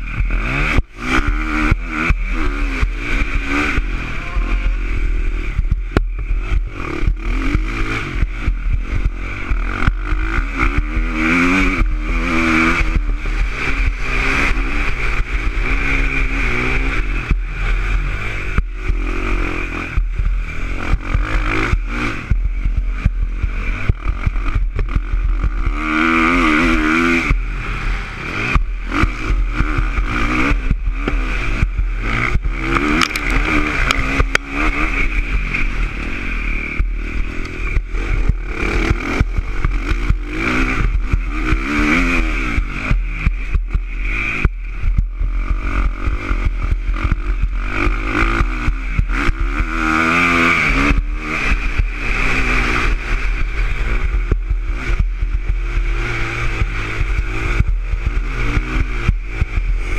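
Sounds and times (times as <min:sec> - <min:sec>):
low engine rumble: 0:00.0 - 0:11.1, 0:27.2 - 0:49.8, 0:50.4 - 0:59.9
motocross bike engine revving: 0:00.0 - 0:59.9.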